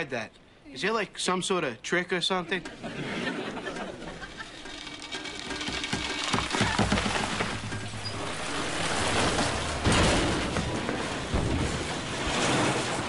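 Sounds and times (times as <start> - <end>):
ceiling crashing and rumbling: 3.8 - 13.0.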